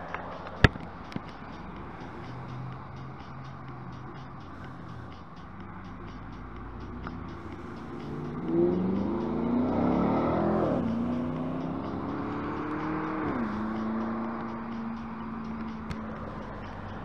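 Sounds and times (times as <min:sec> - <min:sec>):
cars passing by: 0:00.0 - 0:17.0
tyre noise: 0:00.0 - 0:17.0.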